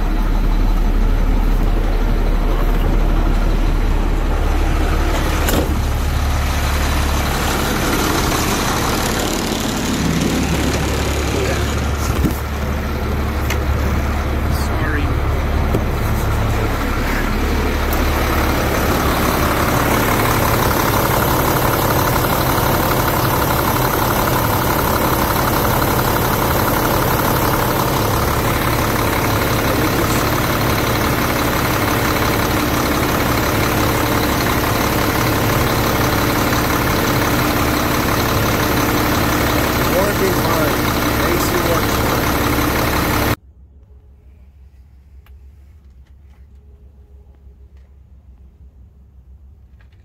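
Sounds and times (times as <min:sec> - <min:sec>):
air-conditioning compressor spinning: 0:00.0 - 0:43.4
truck engine idling: 0:00.0 - 0:43.4.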